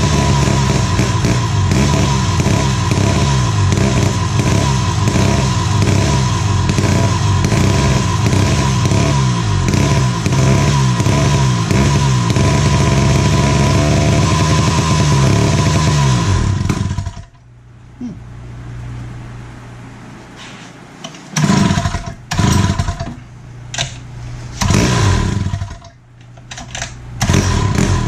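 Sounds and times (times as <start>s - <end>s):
two-stroke engine revving: 0.0s - 17.3s, 21.4s - 23.2s, 24.6s - 25.9s, 27.2s - 28.0s.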